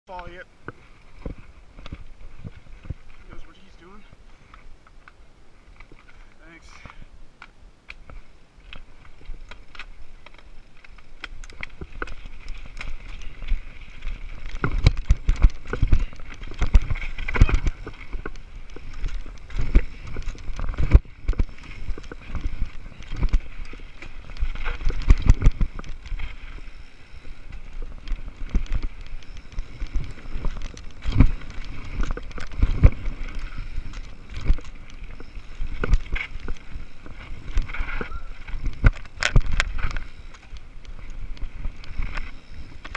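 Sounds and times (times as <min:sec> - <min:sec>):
bike knocking and rattling: 0:00.1 - 0:42.9
bike tyres rolling over dirt: 0:00.1 - 0:42.9.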